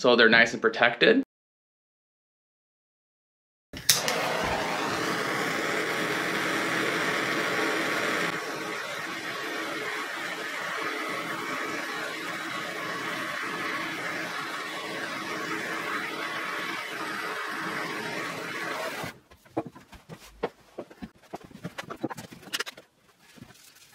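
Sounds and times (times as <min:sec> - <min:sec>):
gas torch flame hissing: 0:03.8 - 0:19.1.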